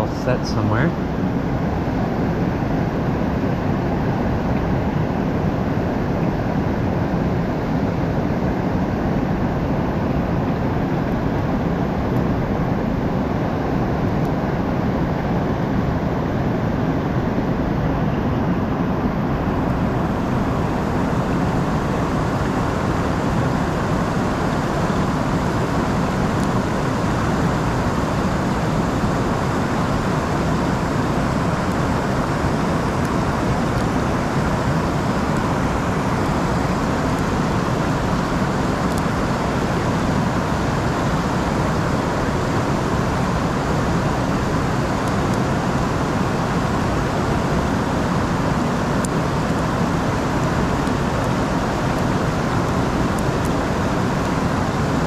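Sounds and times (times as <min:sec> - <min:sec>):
river rapids rushing: 0:18.8 - 0:55.0.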